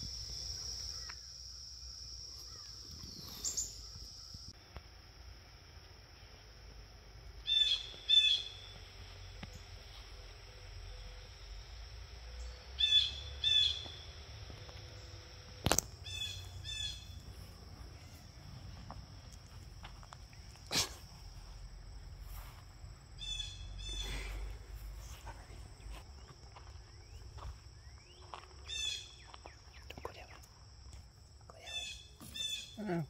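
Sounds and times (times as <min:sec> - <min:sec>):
high-pitched insect drone: 0:00.0 - 0:22.6
bird short high calls: 0:02.5 - 0:03.9, 0:07.5 - 0:08.7.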